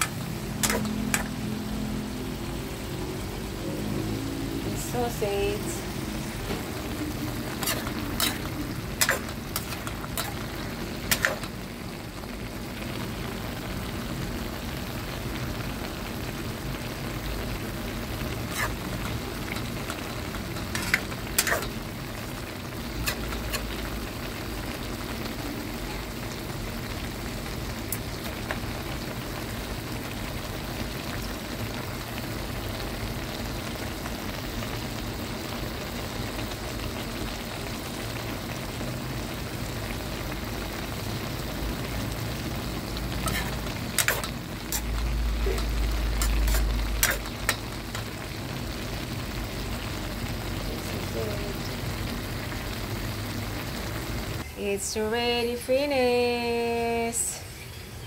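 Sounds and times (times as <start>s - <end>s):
food sizzling in a frying pan: 0.0s - 58.0s
spatula scraping a pan: 7.4s - 11.5s, 18.3s - 20.0s, 20.6s - 21.8s, 43.2s - 45.0s, 45.6s - 48.0s.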